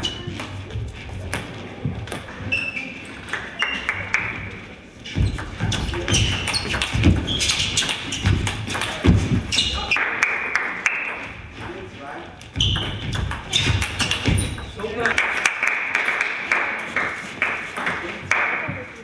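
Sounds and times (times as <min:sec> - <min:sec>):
shoe squeaks: 0:02.3 - 0:03.9, 0:05.0 - 0:10.0, 0:12.5 - 0:15.0.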